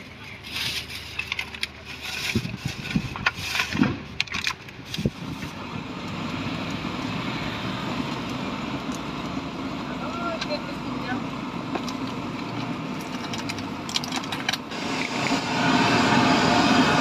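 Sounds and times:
plastic bag rustling: 0:00.0 - 0:05.6.

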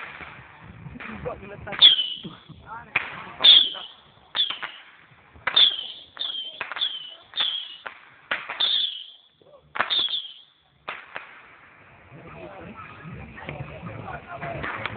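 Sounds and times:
firecrackers banging: 0:00.0 - 0:14.9.

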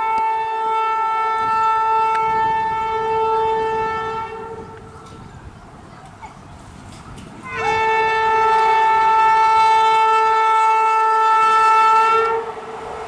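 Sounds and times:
locomotive horn blast: 0:00.0 - 0:05.2, 0:07.4 - 0:12.6
low rumble of train: 0:00.0 - 0:13.0.

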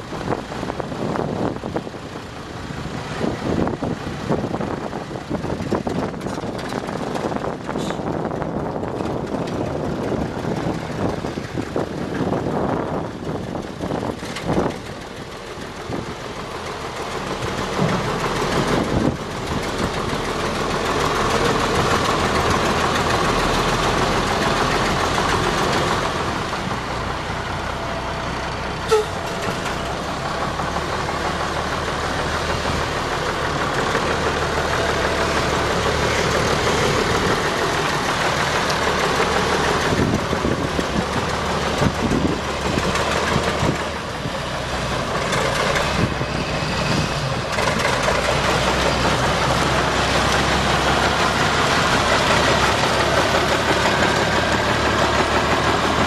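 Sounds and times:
diesel truck engine running: 0:00.0 - 0:56.0.

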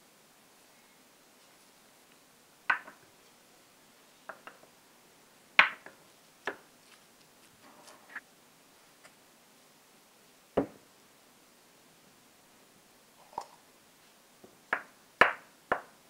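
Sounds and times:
rustling: 0:05.9 - 0:09.2
knocks on wooden cutting board: 0:10.6 - 0:10.8.

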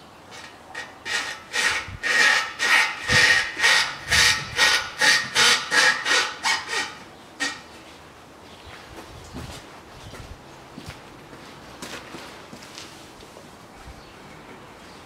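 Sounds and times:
rubber hanger squeaking on metal pin: 0:00.3 - 0:07.7.

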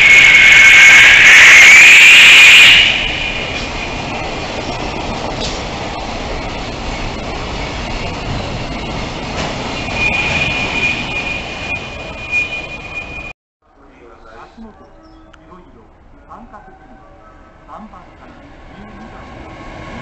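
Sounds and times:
loud high tone: 0:00.0 - 0:04.3, 0:09.7 - 0:13.3
freight train rumbling: 0:00.0 - 0:20.0.

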